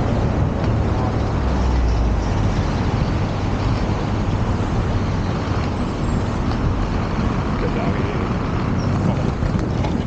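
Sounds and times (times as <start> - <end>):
city street traffic: 0.0 - 10.0
inline skate wheels rolling: 8.7 - 10.0.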